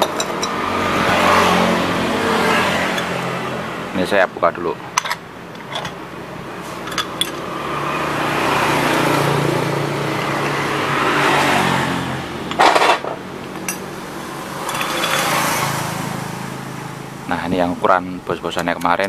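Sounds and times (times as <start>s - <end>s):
vehicle engine passing: 0.0s - 17.9s
sharp clatter: 12.5s - 13.9s, 14.5s - 15.8s.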